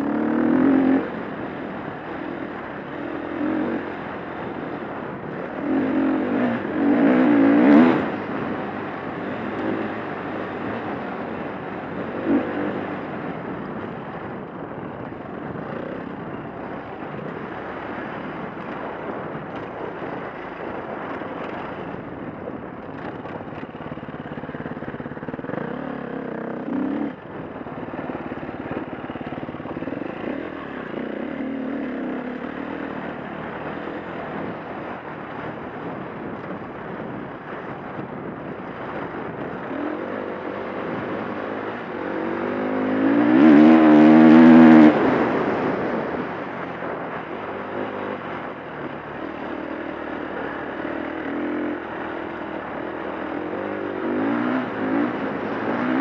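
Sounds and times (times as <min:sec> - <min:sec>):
dirt bike engine revving: 0:00.0 - 0:01.2, 0:02.8 - 0:13.2, 0:24.2 - 0:27.2, 0:38.8 - 0:46.0, 0:49.2 - 0:56.0.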